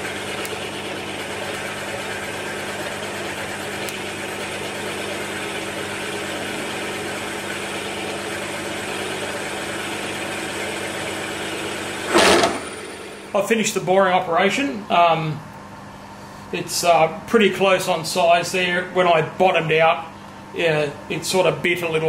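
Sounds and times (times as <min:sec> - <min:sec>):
milling machine humming: 0:00.0 - 0:16.2
loud burst of noise: 0:12.0 - 0:13.4.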